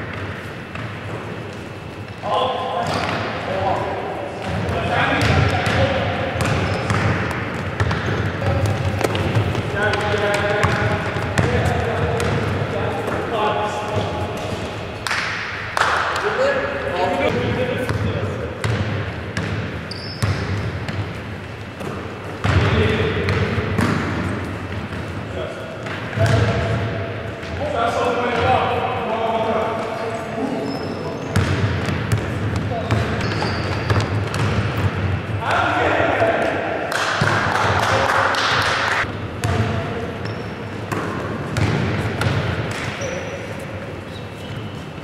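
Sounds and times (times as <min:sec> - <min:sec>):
basketball bouncing on wooden floor: 0:06.4 - 0:12.6, 0:31.4 - 0:35.1, 0:40.9 - 0:42.5.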